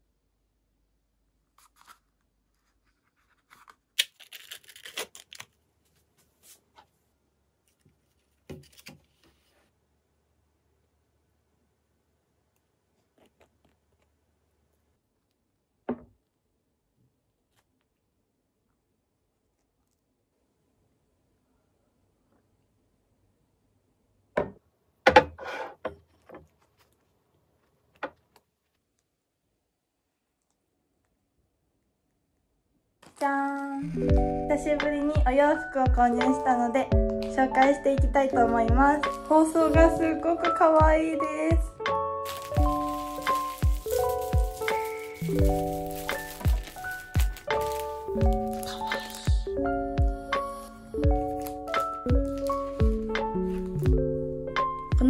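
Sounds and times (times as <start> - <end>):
knock: 15.9 - 16.2
rustling: 42.2 - 49.3, 50.4 - 53.8.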